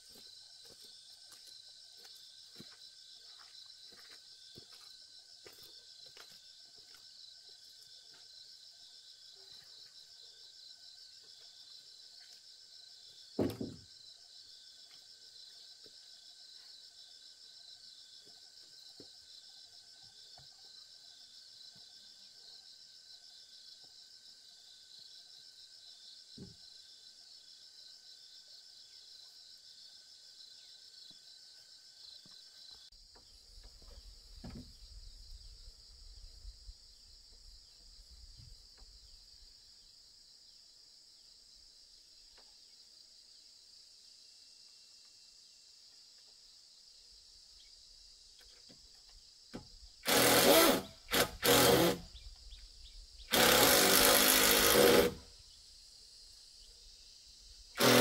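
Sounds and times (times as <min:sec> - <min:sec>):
insects trilling: 0:00.0 - 0:58.0
wooden pole knocking down: 0:13.4 - 0:13.9.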